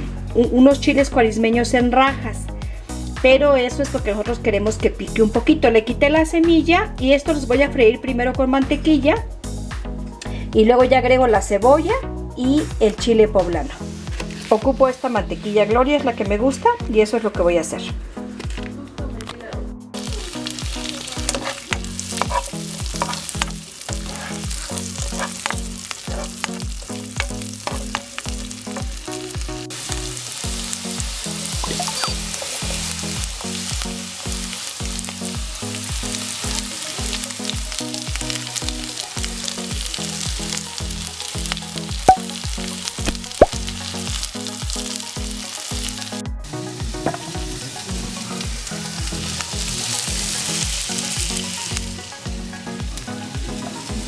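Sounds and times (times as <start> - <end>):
background music with steady beat: 0.0 - 54.0
vegetables sizzling in frying pan: 13.6 - 16.8, 20.0 - 54.0.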